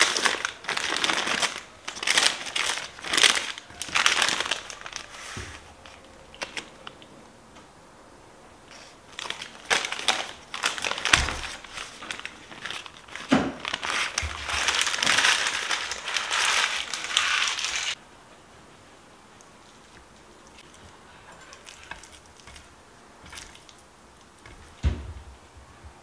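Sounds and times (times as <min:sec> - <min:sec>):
wrapping crinkling and crushing: 0:00.0 - 0:07.1, 0:08.8 - 0:18.0.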